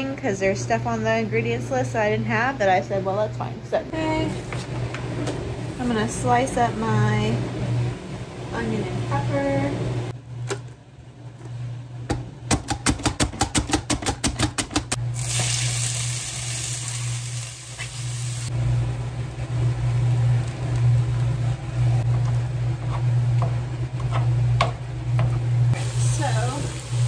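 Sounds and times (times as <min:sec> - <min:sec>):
low steady hum: 0:00.0 - 0:12.7, 0:14.9 - 0:27.0
vegetables and meat sizzling in pan: 0:15.1 - 0:18.5, 0:25.8 - 0:27.0.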